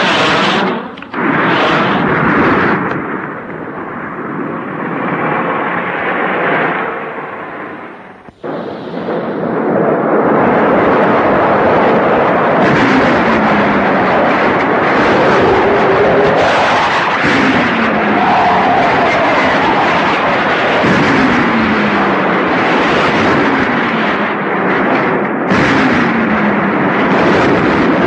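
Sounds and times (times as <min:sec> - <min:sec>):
artillery shelling and explosions: 0:00.0 - 0:28.0
falling droning tone: 0:13.1 - 0:20.7.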